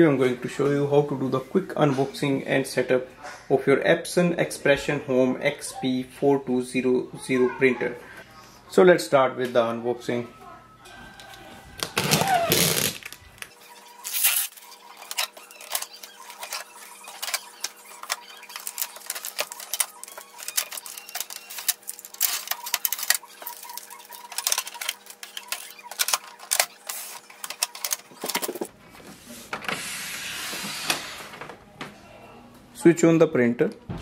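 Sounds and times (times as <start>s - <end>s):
tape peeling off plastic: 11.8s - 28.6s.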